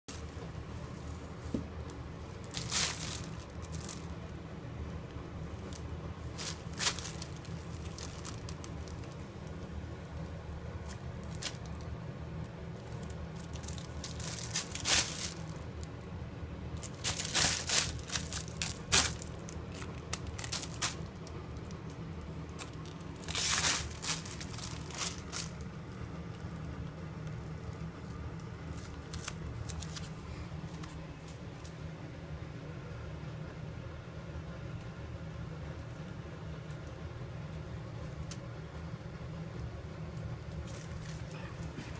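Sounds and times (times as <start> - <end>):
steady low hum: 0.0 - 41.9
plastic bag crinkling: 1.9 - 4.4, 5.5 - 12.0, 12.8 - 15.9, 16.8 - 31.0, 40.5 - 41.9.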